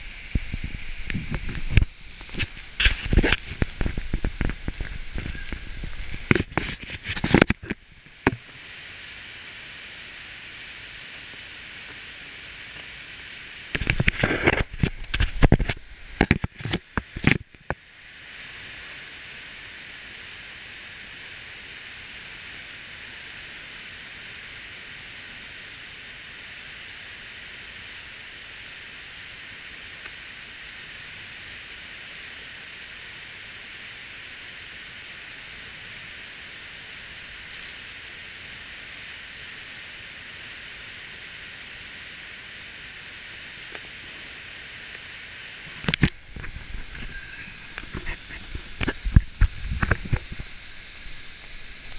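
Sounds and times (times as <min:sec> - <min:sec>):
waterfall rushing: 0:00.0 - 0:07.7, 0:32.2 - 0:51.9
loud crackling bursts: 0:00.0 - 0:08.5, 0:13.6 - 0:17.7.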